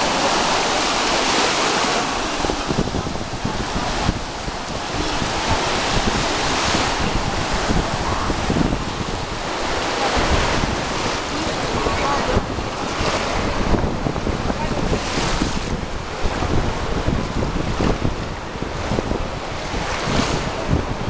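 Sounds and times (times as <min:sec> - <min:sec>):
small waves breaking on shore: 0:00.0 - 0:21.0
wind buffeting microphone: 0:00.0 - 0:21.0
faint voices of people: 0:09.5 - 0:15.3.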